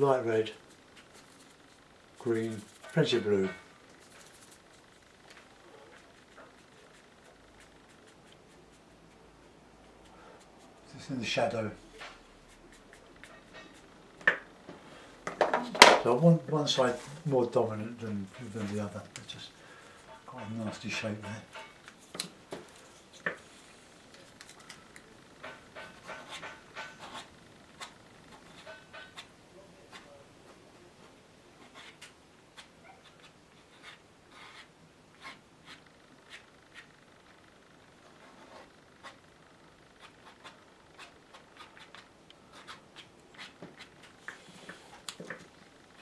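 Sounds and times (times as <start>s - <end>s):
brush strokes on paper: 0.2s - 13.9s
fingers rubbing wet paint on paper: 5.9s - 10.8s, 31.6s - 37.0s.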